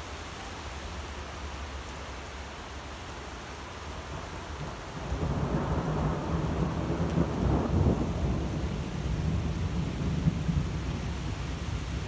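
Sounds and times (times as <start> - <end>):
thunder rumbling: 5.0 - 12.0.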